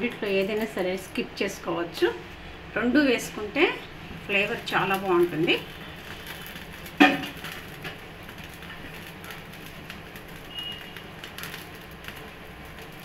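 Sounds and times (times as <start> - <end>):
garlic frying hiss: 0.0 - 13.0.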